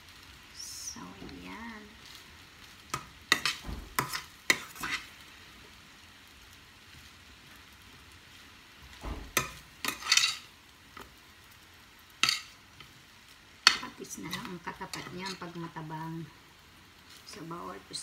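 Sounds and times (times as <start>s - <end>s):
metal spoon scraping frying pan: 2.9s - 5.1s, 9.3s - 10.5s, 12.2s - 12.9s, 13.6s - 15.7s.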